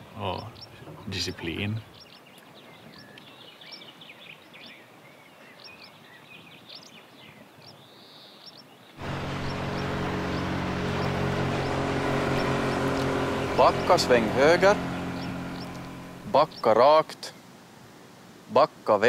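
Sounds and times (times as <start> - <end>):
small birds chirping: 0.0 - 17.5
motorboat engine drone: 9.0 - 16.9.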